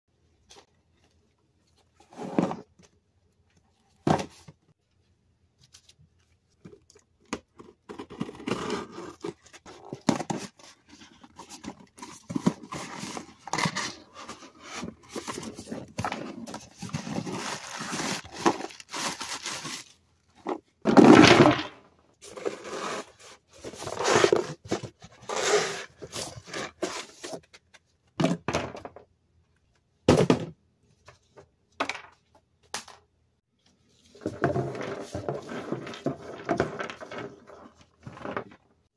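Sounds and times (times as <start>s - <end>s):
plastic toys clattering on wooden floor: 20.4s - 22.6s, 34.2s - 38.6s.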